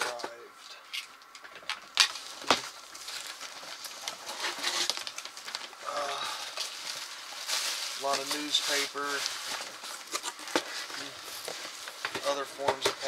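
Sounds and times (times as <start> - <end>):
newspaper rustling and crinkling: 1.2 - 13.0.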